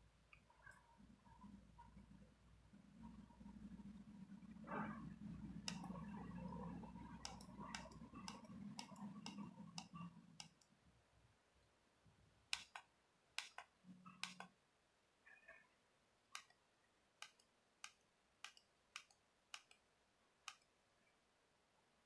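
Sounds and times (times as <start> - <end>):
keypad button clicks: 14.2 - 14.5.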